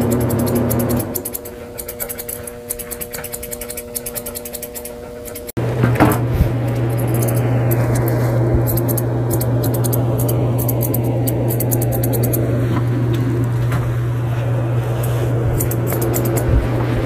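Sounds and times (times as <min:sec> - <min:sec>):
scissors snipping hair: 0:00.0 - 0:05.6, 0:06.7 - 0:12.5, 0:15.0 - 0:16.6
low hum: 0:00.0 - 0:17.0.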